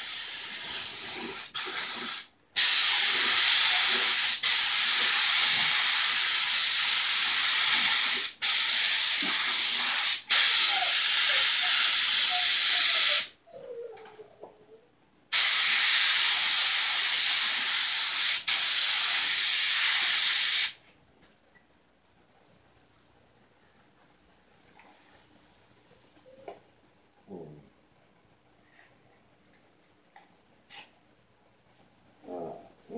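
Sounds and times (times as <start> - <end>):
paint spray gun hissing: 0.0 - 13.3, 15.3 - 20.8.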